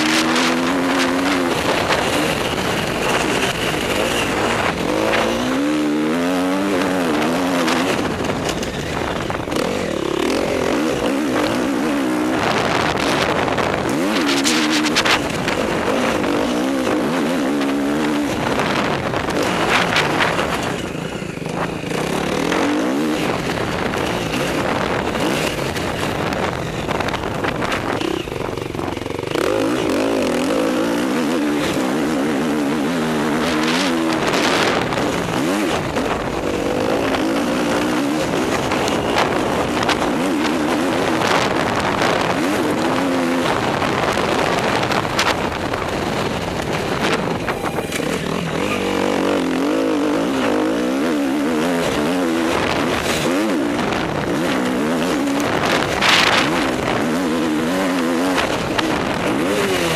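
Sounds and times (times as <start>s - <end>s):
constant rush of noise: 0.0s - 59.9s
dirt bike engine revving: 0.0s - 59.9s.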